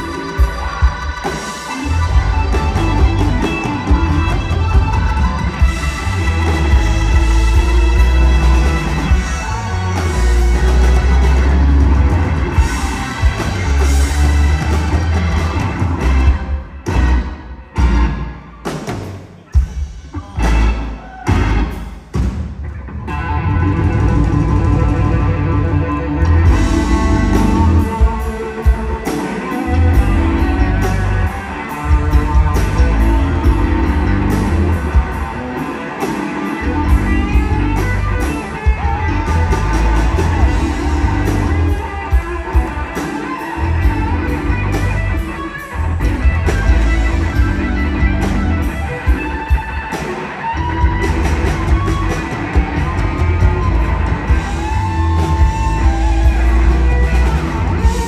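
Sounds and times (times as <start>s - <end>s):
electric guitar bending notes: 0.0s - 18.8s, 20.4s - 58.0s
bass: 0.0s - 18.9s, 19.6s - 58.0s
drums with cymbals: 26.3s - 58.0s.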